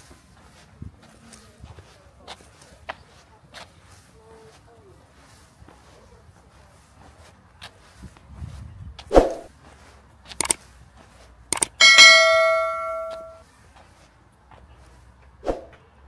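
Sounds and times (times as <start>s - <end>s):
metallic ding ringing: 11.7s - 13.4s.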